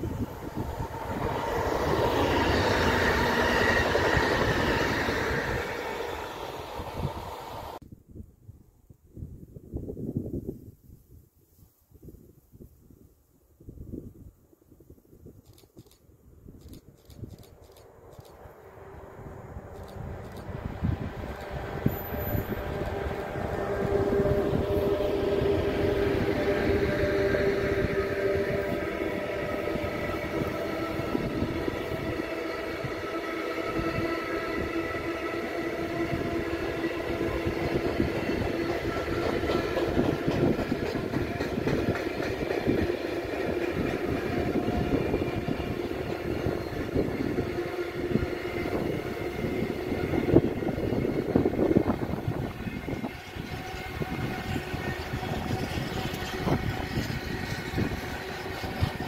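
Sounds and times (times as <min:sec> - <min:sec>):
electric locomotive passing: 0:00.0 - 0:07.8, 0:17.1 - 0:59.0
freight train wheels clattering: 0:37.3 - 0:47.1.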